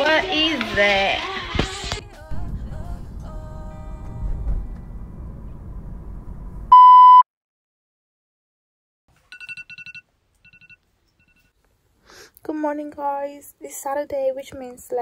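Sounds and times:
low rumbling: 2.0s - 6.8s
electronic beep: 6.7s - 7.2s.

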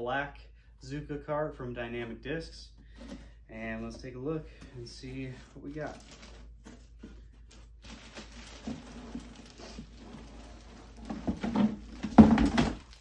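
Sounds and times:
packaging rustling and scraping: 5.2s - 13.0s.

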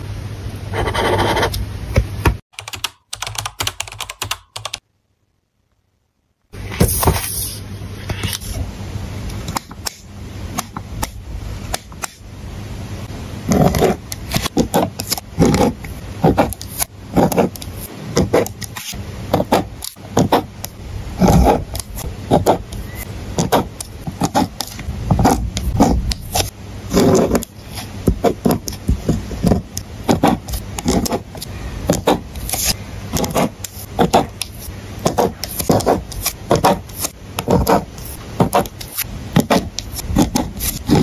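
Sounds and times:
pen scratching on paper: 0.7s - 1.6s, 13.5s - 20.5s, 21.2s - 22.8s, 23.4s - 41.0s.

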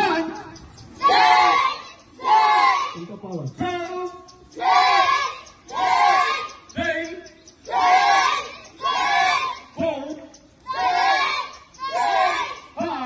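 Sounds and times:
group shouting in unison: 1.0s - 3.0s, 4.6s - 6.6s, 7.7s - 9.8s, 10.6s - 13.0s.

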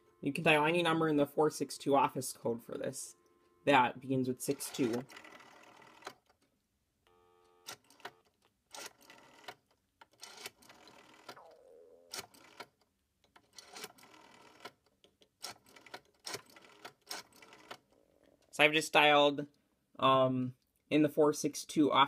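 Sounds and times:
telephone dial tone: 4.5s - 6.2s, 7.1s - 9.6s, 10.2s - 12.7s, 13.5s - 14.8s
rotary phone dial whirring and clicking: 4.5s - 6.4s, 7.1s - 11.4s, 12.1s - 18.0s.

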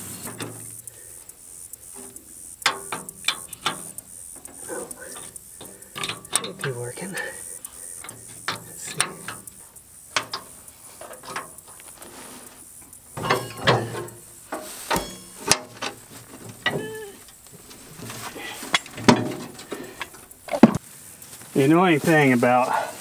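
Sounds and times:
wrench clicking and clanking on metal: 0.0s - 12.0s, 12.8s - 20.8s
short squeaks: 14.7s - 15.4s.

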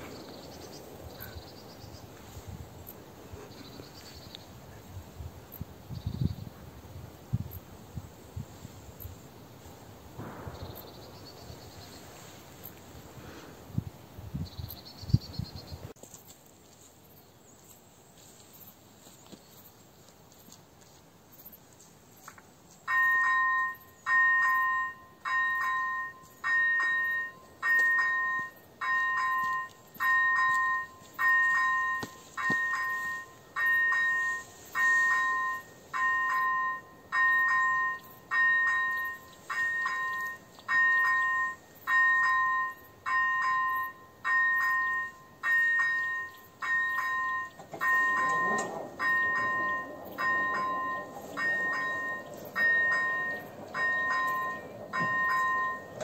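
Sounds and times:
level crossing warning bell: 22.8s - 56.0s.

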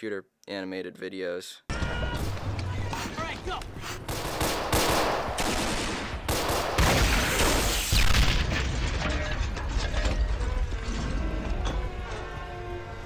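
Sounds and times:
gunfire volleys: 3.8s - 8.7s.

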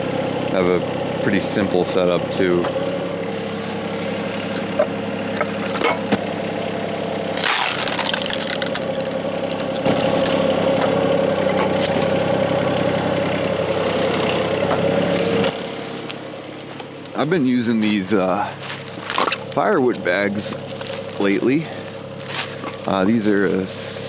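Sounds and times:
diesel engine running: 0.0s - 24.0s
wood crackle: 7.3s - 10.5s, 17.8s - 23.6s.

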